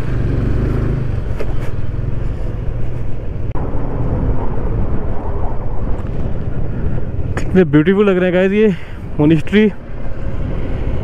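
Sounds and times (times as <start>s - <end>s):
motorcycle engine running: 0.0s - 3.3s.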